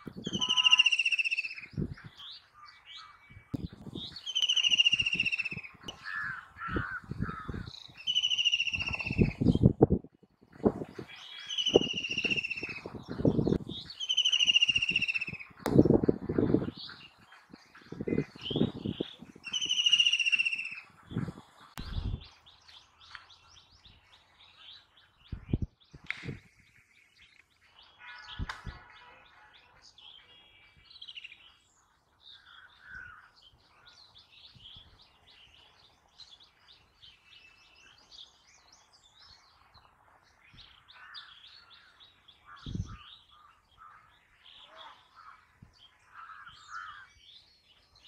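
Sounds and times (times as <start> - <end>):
soft bird chirps: 0.1 - 9.8, 10.9 - 15.9, 16.5 - 48.0
bird loud trilled call: 0.2 - 3.2, 4.0 - 9.5, 11.2 - 12.9, 13.8 - 15.6, 18.1 - 20.9.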